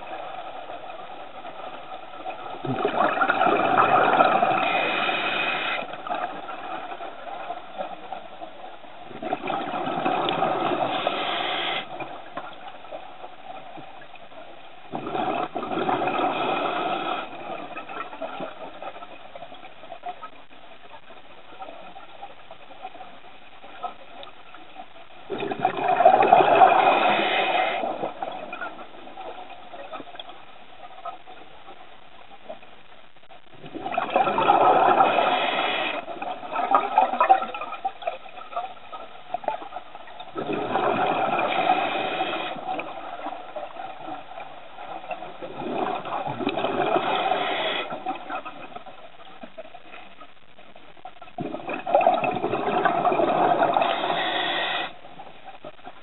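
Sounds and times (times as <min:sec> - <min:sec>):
gush of bubbles exhaling: 0:02.6 - 0:05.8, 0:14.9 - 0:17.4, 0:25.3 - 0:28.3, 0:33.7 - 0:36.0, 0:40.4 - 0:42.9, 0:45.4 - 0:48.0, 0:51.4 - 0:55.0
regulator hiss: 0:10.8 - 0:12.0, 0:53.6 - 0:55.0.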